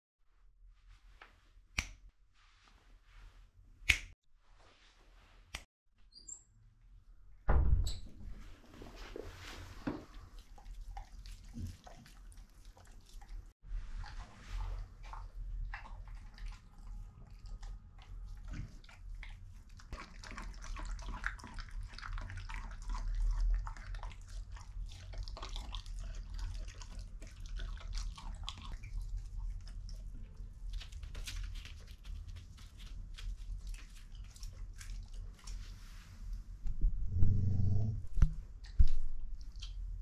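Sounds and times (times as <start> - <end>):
dog chewing meat: 15.0 - 35.6.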